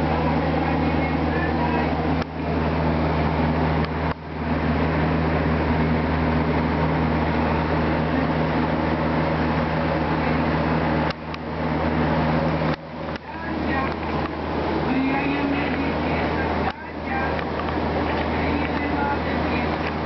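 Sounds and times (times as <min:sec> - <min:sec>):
low mechanical hum: 0:00.0 - 0:20.0
noisy hiss: 0:00.0 - 0:20.0.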